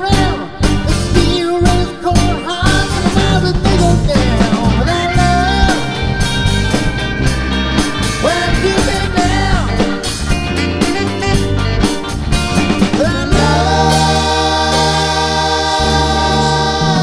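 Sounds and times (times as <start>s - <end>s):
person singing: 0.0s - 6.2s, 8.2s - 10.1s, 12.8s - 17.0s
rock band playing: 0.0s - 17.0s
saxophone: 2.7s - 17.0s.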